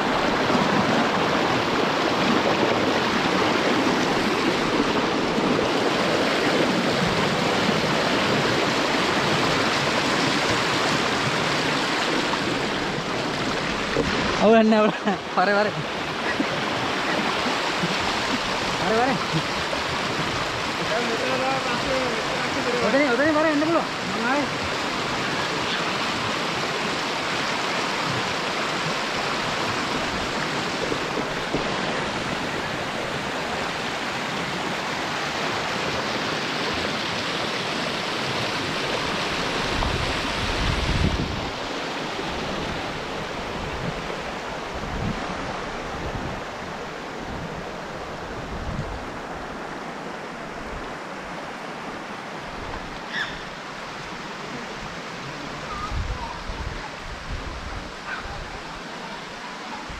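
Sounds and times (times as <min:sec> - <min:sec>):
stream water pouring over rocks: 0:00.0 - 0:45.6
wind buffeting microphone: 0:36.7 - 0:49.7, 0:55.7 - 0:58.8.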